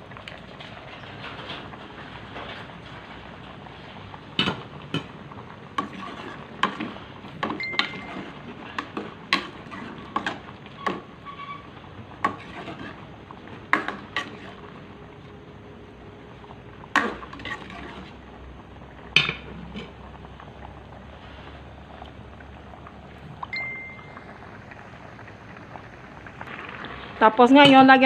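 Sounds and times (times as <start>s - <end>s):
broth bubbling: 0.0s - 28.0s.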